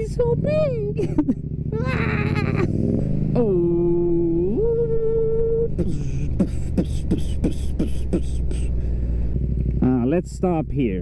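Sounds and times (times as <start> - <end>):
low engine rumble: 0.0 - 11.0
man humming: 3.4 - 8.8
man beatboxing: 5.8 - 8.7.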